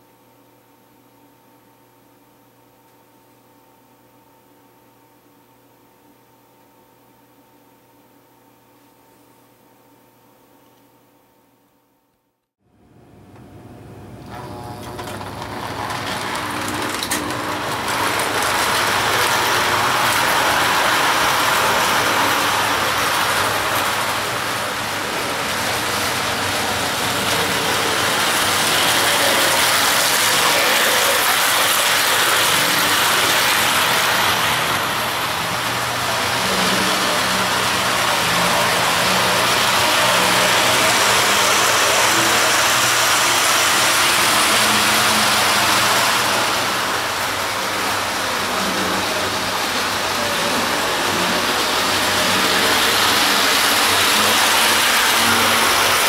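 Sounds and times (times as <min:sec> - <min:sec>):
wheels rattling over rails: 0:14.2 - 0:56.0
toy train motor whirring: 0:15.0 - 0:56.0.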